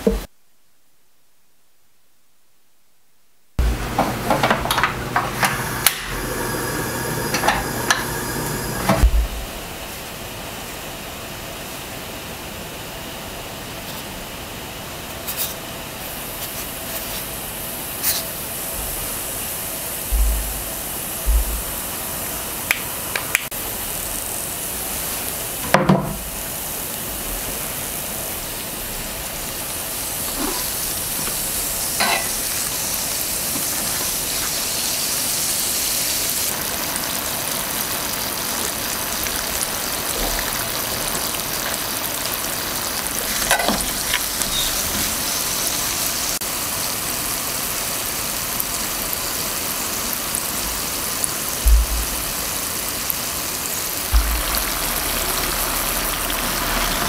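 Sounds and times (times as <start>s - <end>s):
dough deep-frying in oil: 15.2s - 57.0s
oil popping: 54.1s - 57.0s.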